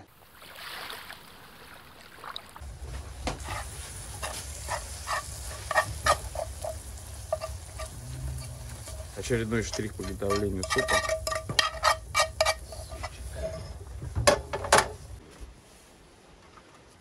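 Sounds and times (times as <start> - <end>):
utensil clicking and scraping in a pot: 3.3 - 15.2
low rumble: 5.4 - 9.6.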